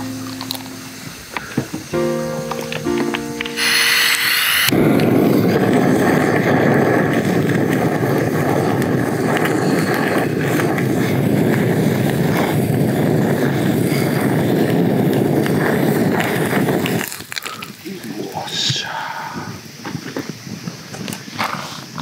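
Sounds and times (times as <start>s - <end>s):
gas torch flame hissing: 3.6s - 21.2s.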